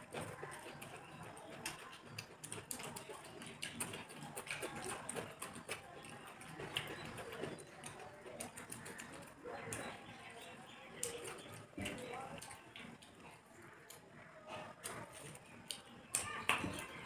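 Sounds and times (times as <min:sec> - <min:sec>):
fingers working rice on plates: 0:00.0 - 0:17.0
wet chewing: 0:00.0 - 0:17.0
lip smacks: 0:00.1 - 0:17.0.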